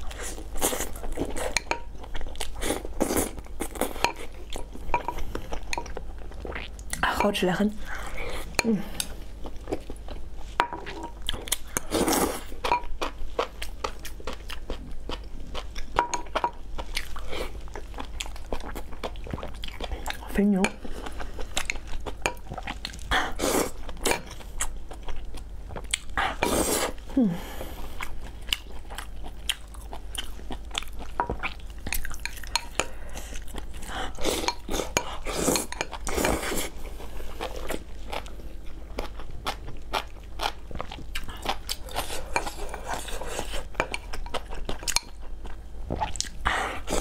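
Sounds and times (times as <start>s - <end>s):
chewing and crunching food: 0.0s - 47.0s.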